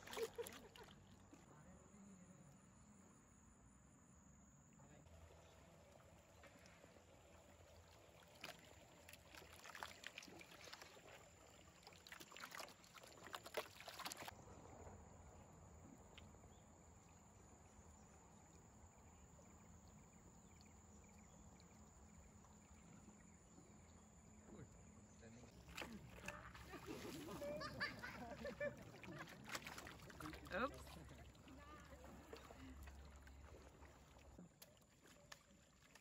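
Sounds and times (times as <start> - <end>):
water splashing against bamboo: 0.0 - 1.4, 5.3 - 14.4, 25.5 - 36.0
faint river ambience: 0.0 - 36.0.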